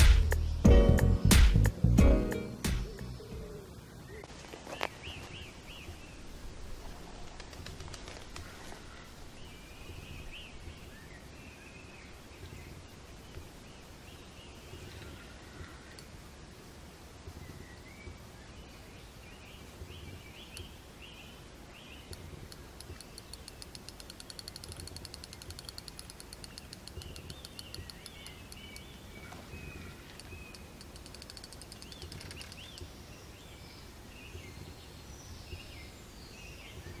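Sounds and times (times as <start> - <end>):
birds chirping: 0.0 - 6.5, 7.5 - 16.3, 17.2 - 37.0
fishing reel clicking rapidly: 23.0 - 28.2, 30.8 - 32.6.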